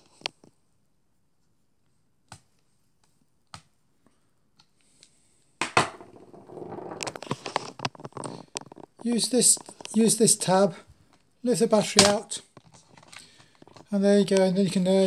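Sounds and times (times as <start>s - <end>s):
handling noise rubbing and knocking: 5.6s - 10.5s.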